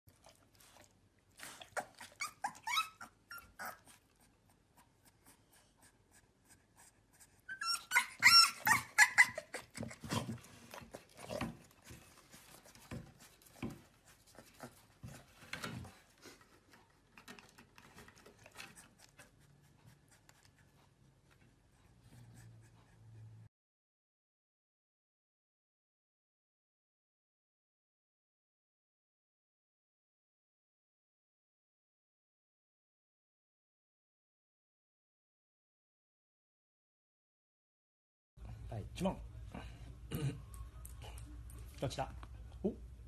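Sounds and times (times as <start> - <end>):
puppy barking in high-pitched yips: 7.5 - 9.4.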